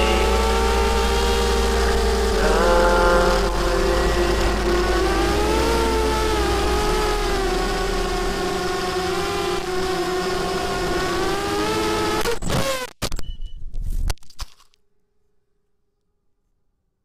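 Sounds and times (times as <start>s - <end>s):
drone motors whining: 0.0s - 12.6s.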